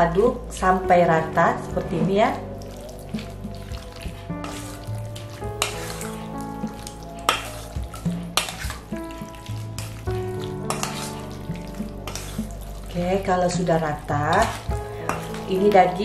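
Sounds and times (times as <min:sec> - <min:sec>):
background music: 0:00.0 - 0:16.0
meat squelching and scraping: 0:01.7 - 0:16.0.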